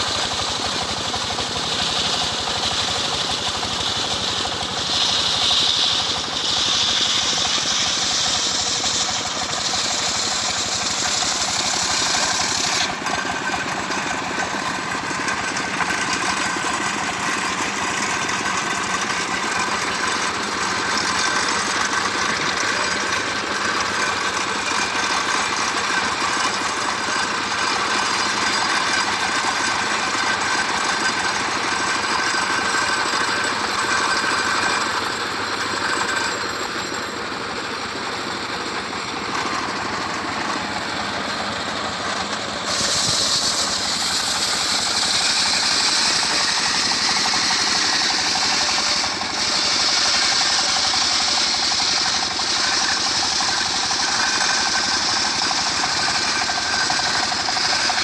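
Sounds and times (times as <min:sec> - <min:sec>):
saw blade spinning free: 0:00.0 - 0:58.0
sawmill engine running: 0:00.0 - 0:58.0
bright hiss: 0:42.5 - 0:51.4.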